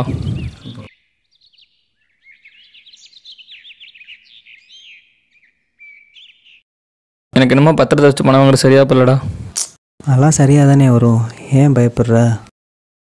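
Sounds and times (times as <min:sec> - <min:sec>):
small birds chirping: 0:00.0 - 0:06.7.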